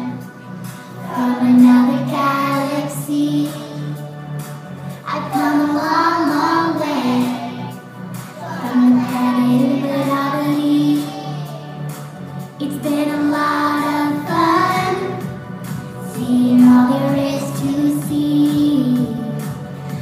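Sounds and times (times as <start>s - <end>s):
backing music: 0.0s - 20.0s
children singing: 1.0s - 4.0s, 5.1s - 11.9s, 12.8s - 15.3s, 16.2s - 19.2s.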